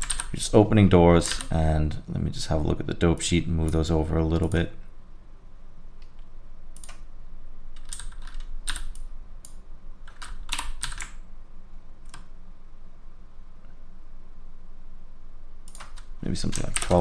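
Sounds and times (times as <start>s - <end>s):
computer keyboard typing: 0.0s - 0.4s, 7.8s - 11.2s, 15.7s - 17.0s.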